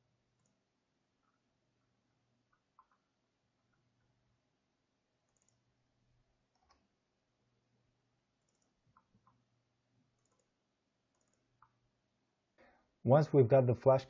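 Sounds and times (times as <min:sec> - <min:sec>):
faint computer mouse clicks: 0:02.5 - 0:03.1, 0:05.3 - 0:05.6, 0:06.5 - 0:06.9, 0:08.4 - 0:09.4, 0:10.1 - 0:11.8.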